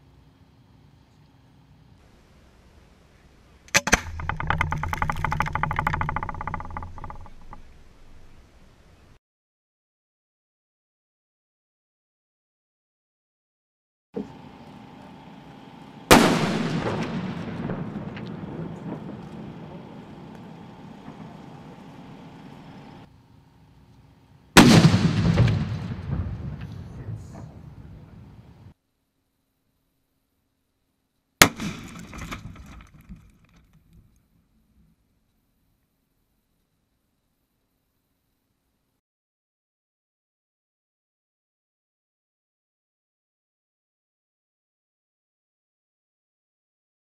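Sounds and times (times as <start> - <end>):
faint outdoor background: 0.0 - 9.2, 14.2 - 39.0
rapid crackling pops: 3.7 - 8.3, 31.4 - 34.2
firework bangs: 16.1 - 23.1, 24.6 - 28.4, 31.4 - 33.1
low rumble: 16.2 - 23.1.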